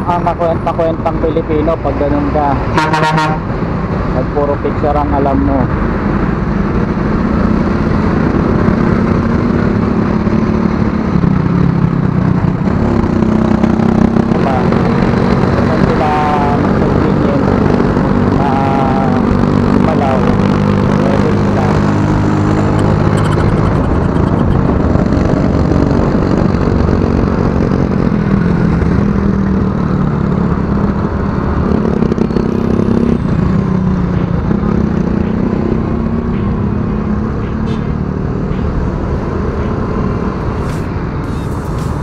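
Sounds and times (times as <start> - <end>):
wind and road noise: 0.0 - 42.0.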